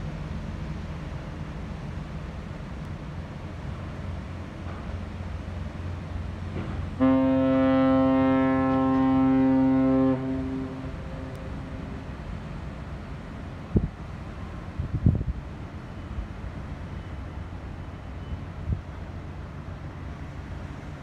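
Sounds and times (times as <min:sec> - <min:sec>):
deep ship's horn blast: 0:06.6 - 0:12.7.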